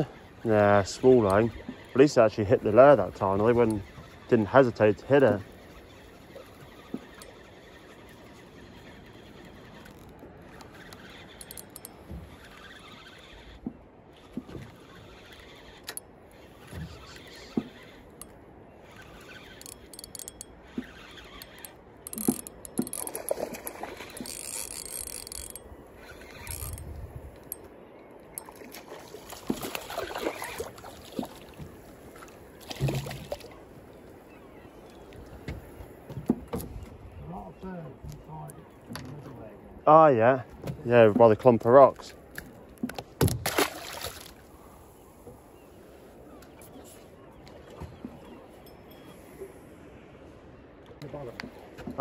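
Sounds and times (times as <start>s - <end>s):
fishing reel whirring and clicking: 0.0s - 27.7s.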